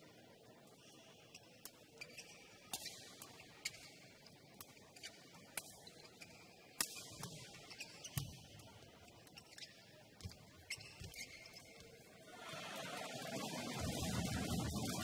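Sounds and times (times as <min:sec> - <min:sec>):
shoes squeaking: 0:09.3 - 0:12.0.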